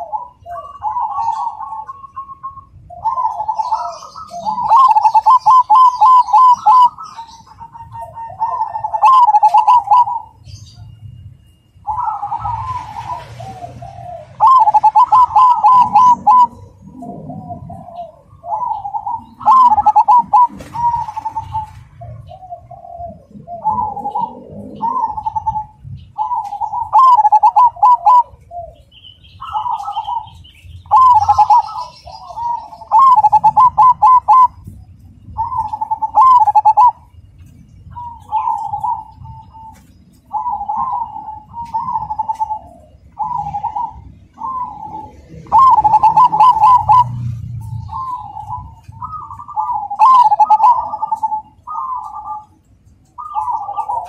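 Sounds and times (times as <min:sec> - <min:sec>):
dove cooing: 0:00.0 - 0:10.9, 0:11.8 - 0:54.0.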